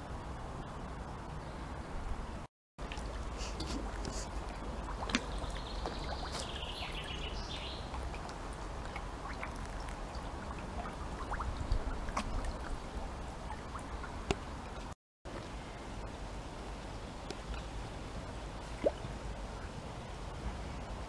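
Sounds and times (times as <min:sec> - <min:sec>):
fish splashing: 0:02.8 - 0:06.7
water trickling and splashing: 0:02.8 - 0:21.0.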